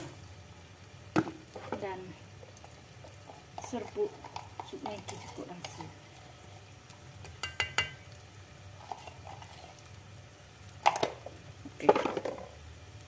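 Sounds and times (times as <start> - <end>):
faint sizzle in a pot: 0.0 - 13.0
spatula scraping a pot: 3.2 - 6.5, 8.8 - 9.9.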